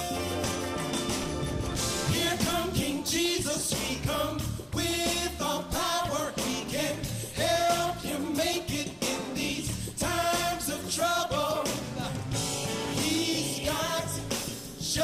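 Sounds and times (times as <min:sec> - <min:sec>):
instrumental accompaniment: 0:00.0 - 0:03.1, 0:11.8 - 0:14.8
man singing gospel song: 0:02.0 - 0:15.0.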